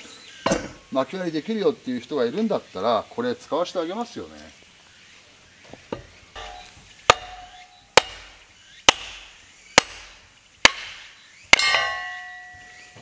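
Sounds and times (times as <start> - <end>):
hammer striking log: 5.9 - 13.0
metallic ring: 6.4 - 7.9, 11.6 - 13.0.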